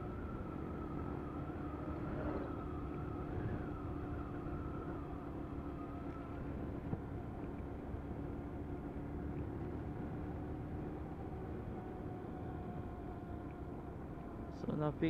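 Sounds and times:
whining tone: 0:00.0 - 0:07.5
road and wind rumble: 0:00.0 - 0:15.0.

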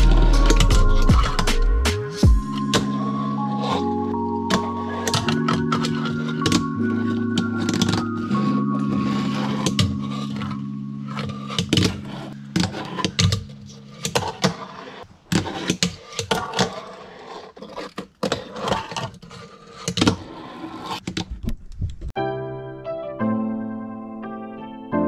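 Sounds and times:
background music: 0:00.0 - 0:13.0, 0:22.2 - 0:25.0
small wheels rolling on wood: 0:03.1 - 0:21.0.

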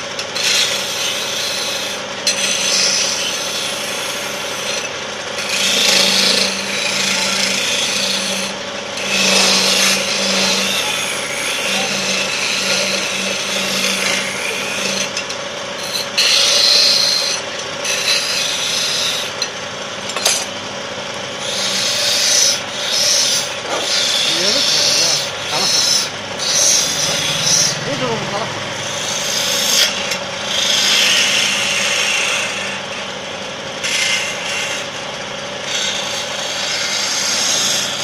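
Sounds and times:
wood lathe humming: 0:00.0 - 0:38.0
chisel rasping on wood: 0:05.4 - 0:15.2, 0:15.8 - 0:19.4, 0:21.4 - 0:27.8, 0:35.6 - 0:38.0.

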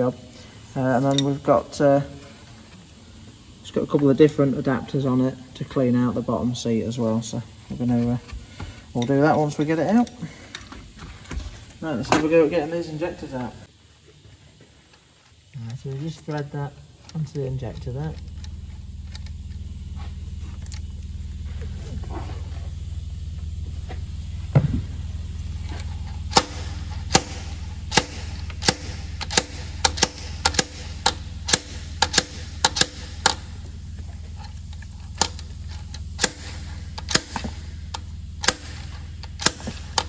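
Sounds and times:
thump: 0:24.5 - 0:24.9.

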